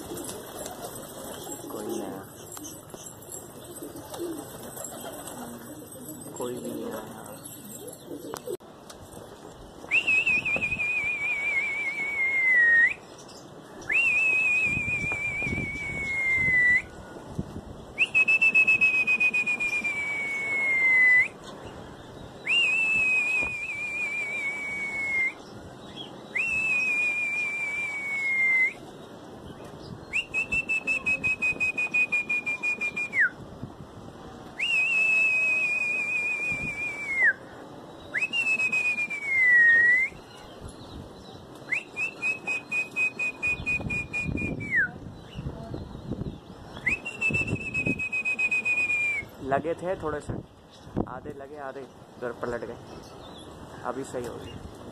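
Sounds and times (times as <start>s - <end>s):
long high whistles: 9.9s - 13.0s, 13.9s - 17.0s, 18.0s - 21.4s, 22.4s - 25.4s, 26.3s - 28.8s, 34.6s - 37.4s, 38.1s - 40.3s, 46.8s - 49.4s.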